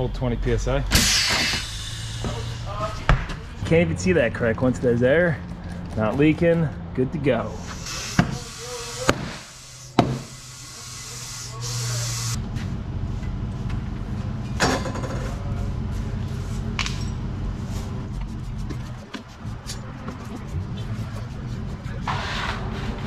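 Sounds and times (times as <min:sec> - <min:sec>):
compressed air hissing: 0:00.9 - 0:03.0, 0:07.6 - 0:12.4
broom scratching concrete floor: 0:17.6 - 0:23.0.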